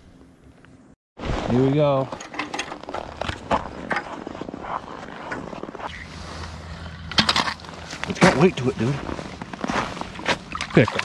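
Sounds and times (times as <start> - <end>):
crackling: 0.6 - 10.9
boots crunching on snow: 7.7 - 10.5.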